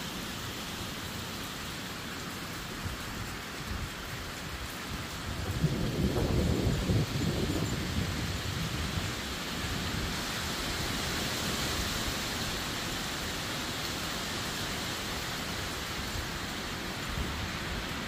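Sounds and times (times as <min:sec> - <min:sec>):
heavy rain hissing: 0:00.0 - 0:18.0.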